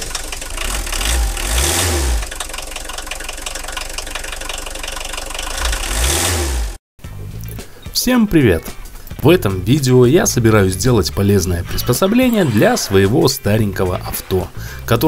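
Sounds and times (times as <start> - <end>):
engine revving: 0.0 - 7.5.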